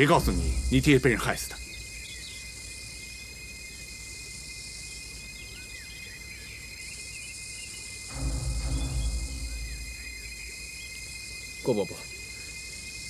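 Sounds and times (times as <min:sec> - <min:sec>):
low rumble: 0:00.0 - 0:01.7, 0:08.1 - 0:10.6
insects chirring: 0:00.0 - 0:13.0.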